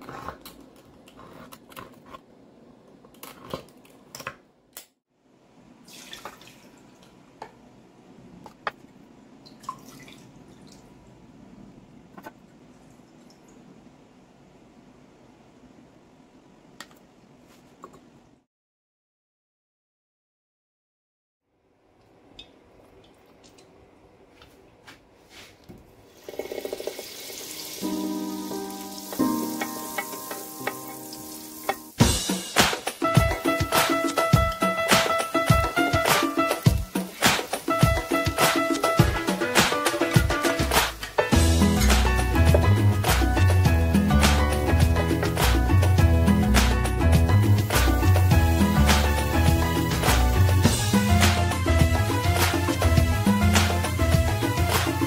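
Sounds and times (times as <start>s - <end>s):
butter sizzling in a pan: 26.1s - 32.0s.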